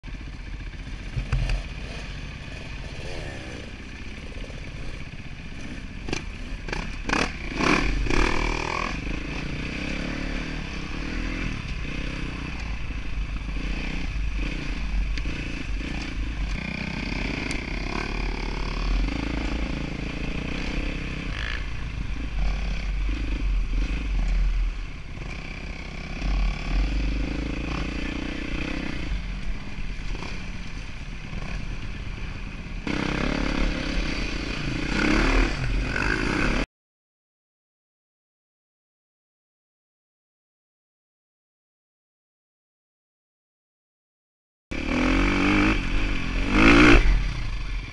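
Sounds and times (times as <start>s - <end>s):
dirt bike engine revving: 0.1s - 29.3s, 32.8s - 36.7s, 44.7s - 47.9s.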